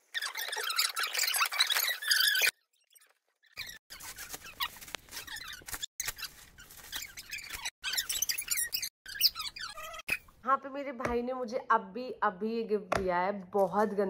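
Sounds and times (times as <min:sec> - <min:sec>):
wrapping paper rustling and crinkling: 0:03.9 - 0:07.7.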